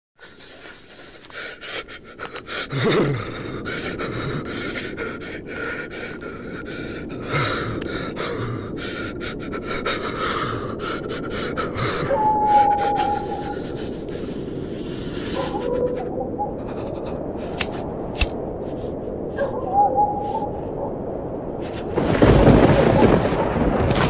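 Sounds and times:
man gasping shaky breaths: 0.2s - 15.8s
steady wind: 0.2s - 24.0s
sharp clicks: 17.6s - 18.4s.

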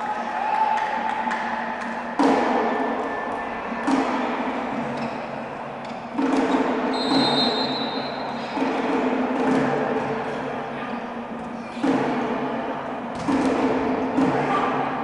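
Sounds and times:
heavy thuds echoing in a hall: 0.0s - 15.0s
referee's whistle: 6.9s - 8.2s.

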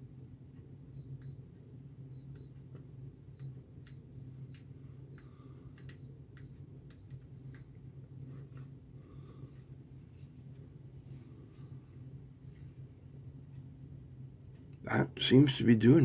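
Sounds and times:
steady low hum: 0.0s - 16.0s
electronic device ticks and beeps: 0.9s - 1.4s, 2.1s - 2.6s, 3.3s - 7.7s.

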